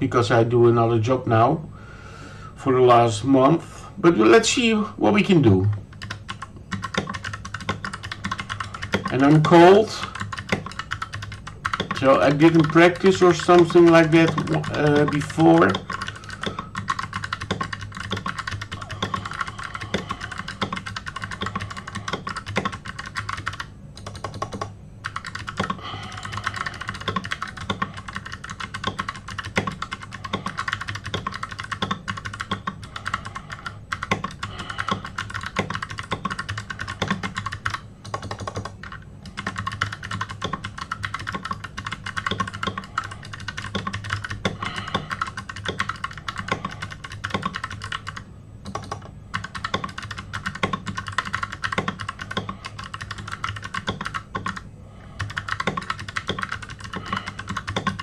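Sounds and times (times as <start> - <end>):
rapid keyboard typing: 4.1 - 58.0.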